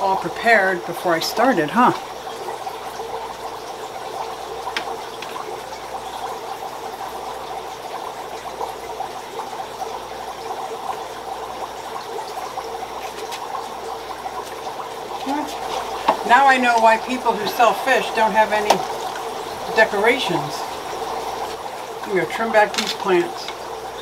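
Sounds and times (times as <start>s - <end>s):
aquarium water bubbling: 0.0s - 24.0s.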